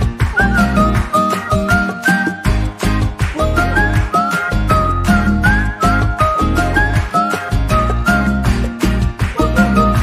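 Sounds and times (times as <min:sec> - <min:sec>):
upbeat music with whistled melody: 0:00.0 - 0:10.0.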